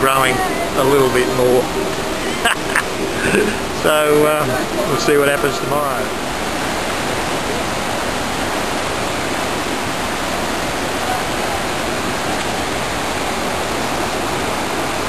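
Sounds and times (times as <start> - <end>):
mountain stream rushing over rapids: 0.0 - 15.0.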